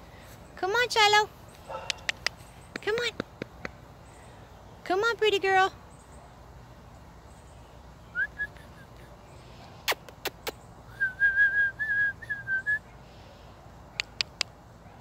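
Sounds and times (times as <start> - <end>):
sharp clicks: 1.8 - 3.8, 14.0 - 14.6
person whistling: 11.0 - 12.8.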